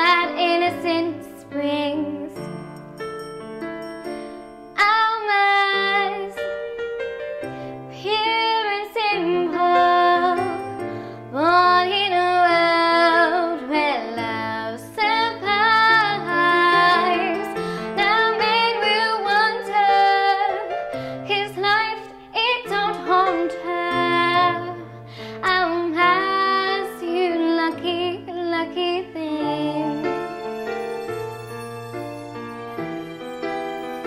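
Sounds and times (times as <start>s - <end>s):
woman singing a ballad: 0.0s - 2.5s, 4.8s - 6.6s, 7.9s - 30.2s
instrumental backing track: 0.0s - 34.0s.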